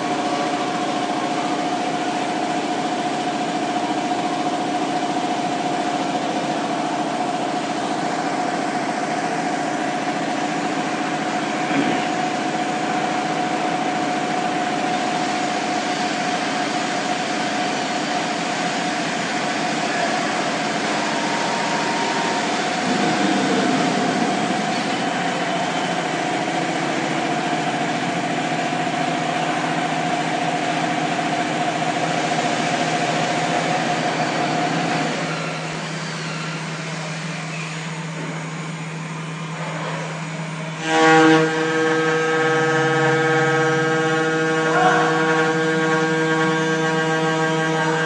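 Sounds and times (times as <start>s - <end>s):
cnc router spindle whine: 0.0s - 48.0s
buzzing pitched tone: 18.4s - 37.3s, 40.7s - 48.0s
router cutting wood: 19.9s - 27.3s, 40.8s - 48.0s
loud burst: 21.1s - 27.6s.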